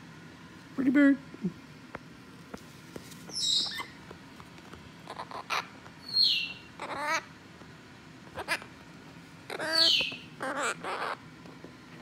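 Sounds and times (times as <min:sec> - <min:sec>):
parrot squawking and screeching: 0:03.3 - 0:04.0, 0:05.0 - 0:07.4, 0:08.3 - 0:08.8, 0:09.4 - 0:11.3.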